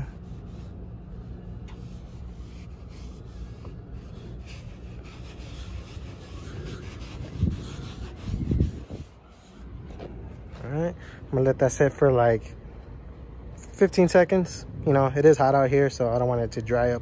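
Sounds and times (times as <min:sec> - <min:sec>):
towel scuffing car paint: 0:01.4 - 0:10.9.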